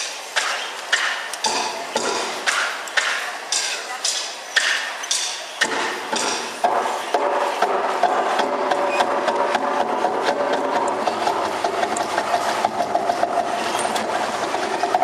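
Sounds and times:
percussion strikes clattering: 0.0 - 15.0.

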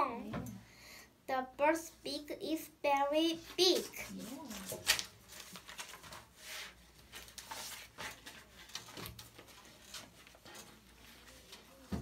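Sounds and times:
notebook pages rustling: 3.7 - 12.0.

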